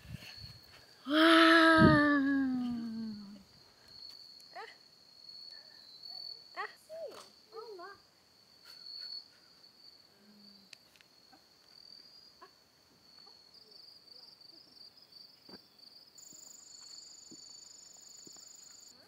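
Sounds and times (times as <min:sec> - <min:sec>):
insect high-pitched trill: 0:00.1 - 0:19.0
insect pulsing trill: 0:16.2 - 0:19.0.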